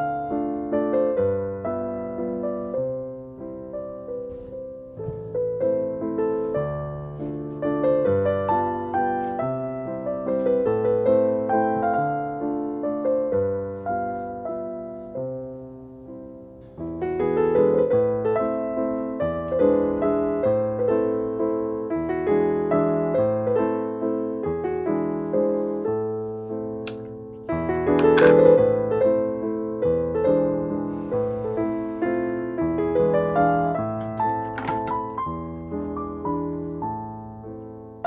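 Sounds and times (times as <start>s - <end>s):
soft electric piano chords: 0.0s - 38.0s.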